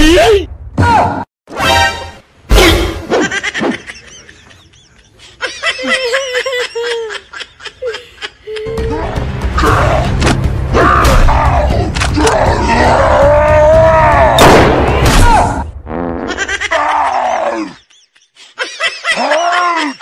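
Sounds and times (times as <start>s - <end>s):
child wailing and sobbing: 5.6s - 10.1s, 19.0s - 20.0s.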